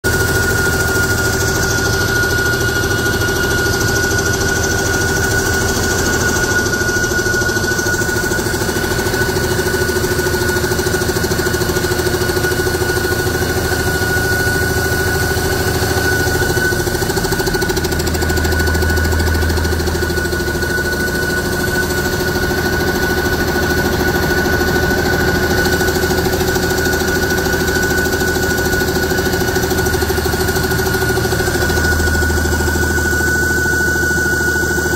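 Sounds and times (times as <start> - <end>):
steady high whine: 0.1 - 34.9
diesel engine idling: 13.2 - 34.7.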